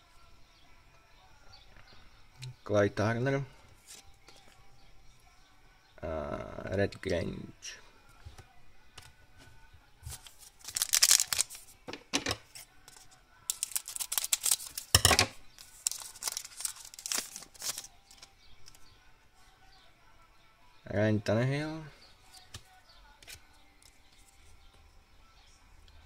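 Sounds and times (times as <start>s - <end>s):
foil wrapper crinkling: 10.0s - 11.7s, 12.5s - 18.8s.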